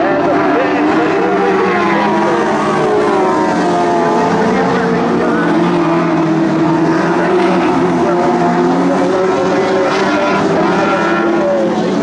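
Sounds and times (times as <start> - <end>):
race car engines revving: 0.0 - 12.0.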